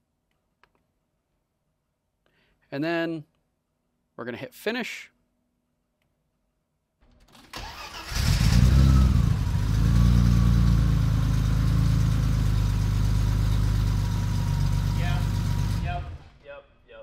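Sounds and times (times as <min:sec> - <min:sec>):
car engine starting and idling: 0:07.1 - 0:16.4.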